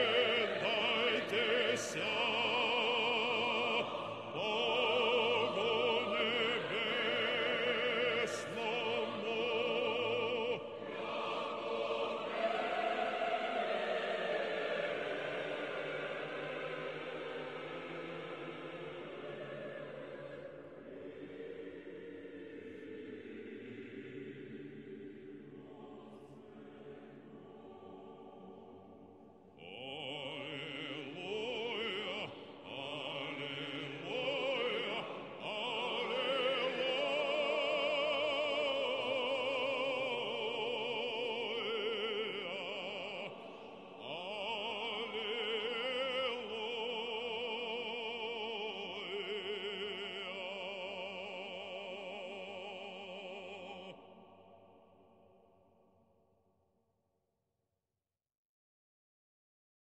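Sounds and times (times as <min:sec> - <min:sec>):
church chant with vibrato: 0:00.0 - 0:56.2.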